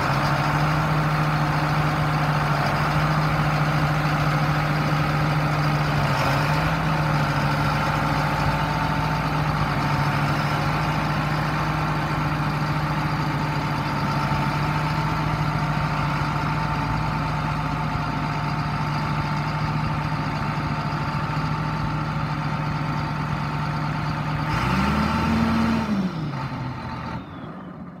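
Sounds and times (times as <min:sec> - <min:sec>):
tractor diesel engine idling: 0:00.0 - 0:28.0.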